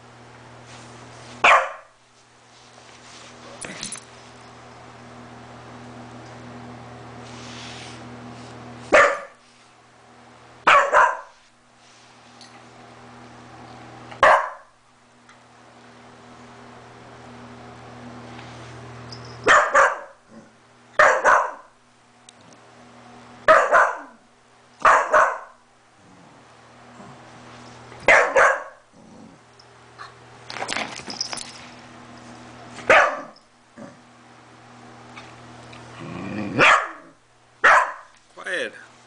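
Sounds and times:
dog barking: 1.4 - 1.9, 8.9 - 9.4, 10.6 - 11.4, 14.2 - 14.7, 19.4 - 20.2, 21.0 - 21.7, 23.5 - 24.2, 24.8 - 25.6, 28.0 - 28.8, 32.9 - 33.4, 36.6 - 38.1.

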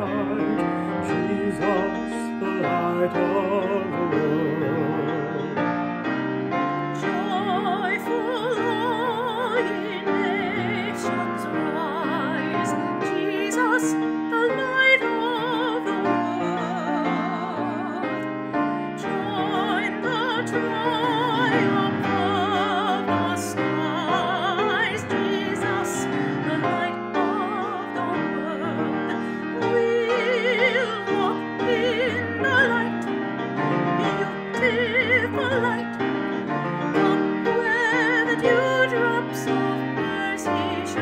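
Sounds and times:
piano accompaniment: 0.0 - 41.0
singer with wide vibrato: 18.9 - 33.1, 34.0 - 36.2.

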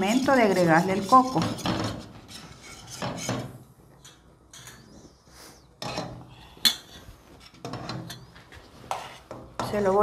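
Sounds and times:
whisk scraping against metal pot: 0.0 - 4.9, 7.4 - 10.0.

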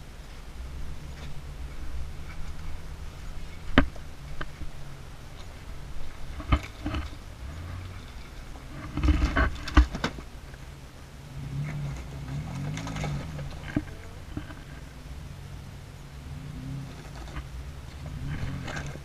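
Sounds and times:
tyres crunching on stones: 0.0 - 10.7, 11.5 - 15.4, 16.4 - 19.0
car engine rumbling and revving: 0.0 - 19.0.

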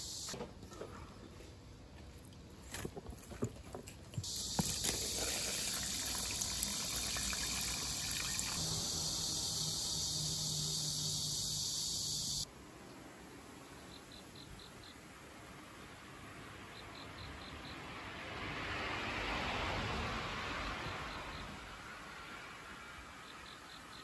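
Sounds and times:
faint cricket chirps: 0.0 - 0.4, 4.2 - 12.9, 23.1 - 24.0
water pouring into plastic container: 4.3 - 8.6.

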